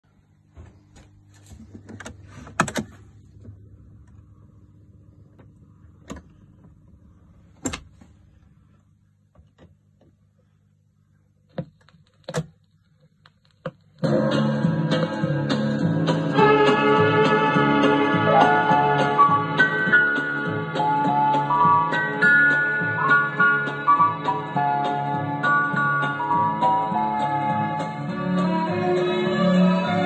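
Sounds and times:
amplifier hum: 0.0 - 11.8
record changer clicks and clunks: 0.9 - 4.3, 5.3 - 8.1
music from speaker: 14.0 - 30.0.

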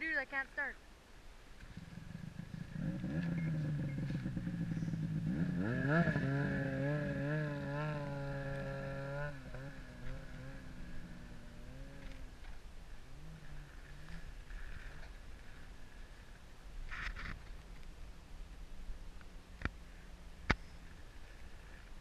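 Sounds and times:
snowmobile engine revving: 1.7 - 12.4.

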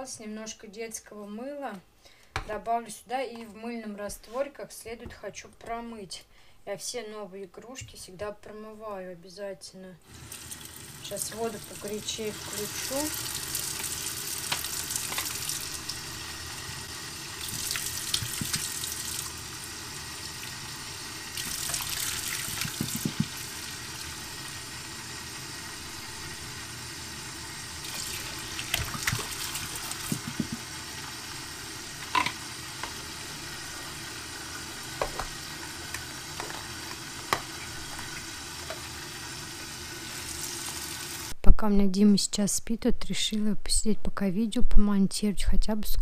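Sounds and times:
tap running into sink: 13.8 - 15.6, 17.4 - 19.2, 21.4 - 23.6, 27.8 - 30.8, 32.0 - 33.0, 34.9 - 38.9
water splashing: 17.4 - 19.3, 27.8 - 30.7
plastic cups knocking: 22.5 - 23.4, 30.0 - 30.7.

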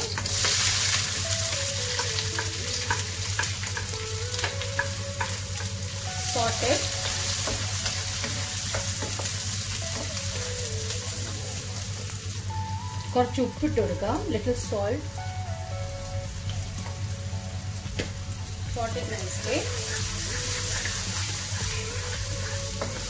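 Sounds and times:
onion sizzling in oil: 0.0 - 23.0
wooden spatula scraping pan: 19.2 - 23.0.

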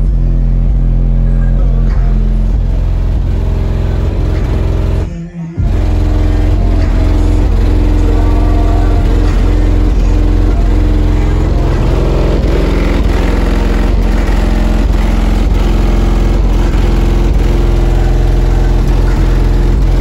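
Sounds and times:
loud bass-heavy music from car: 0.0 - 20.0.

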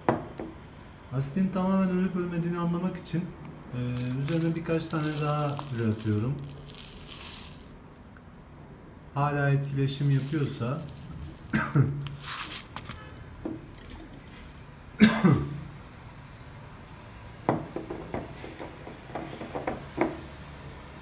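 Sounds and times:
glass bottle swirling: 4.0 - 7.8, 10.0 - 14.4
person coughing: 11.5 - 12.0, 15.0 - 15.6.

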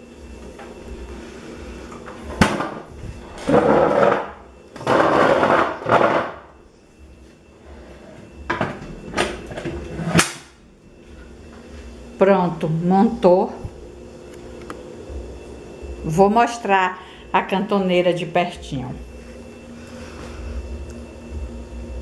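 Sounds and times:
stools scraping on tile floor: 2.0 - 6.4, 7.6 - 10.4.

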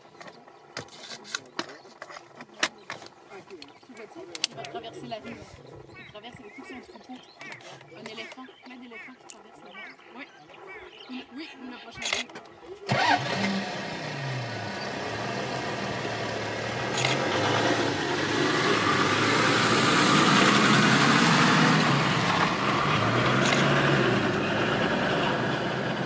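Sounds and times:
vehicle engine starting and running: 12.0 - 26.0.

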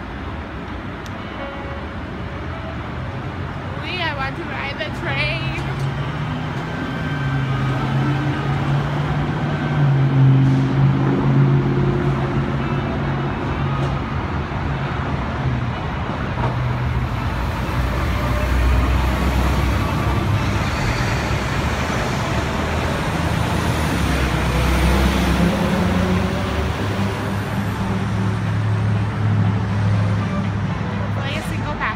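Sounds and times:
city traffic noise: 0.0 - 31.9
light rail train pulling away: 15.8 - 31.0.

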